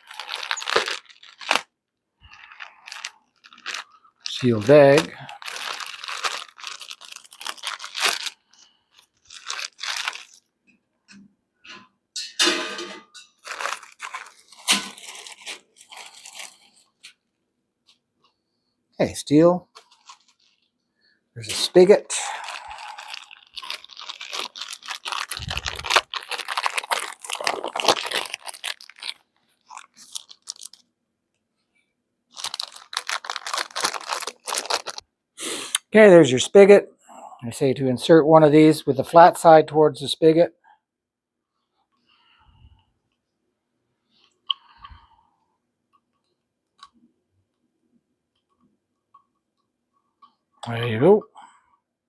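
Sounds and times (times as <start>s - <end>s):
plastic packaging crinkling: 0.0s - 10.5s, 13.4s - 17.2s, 19.7s - 20.8s, 21.6s - 30.9s, 32.3s - 35.0s.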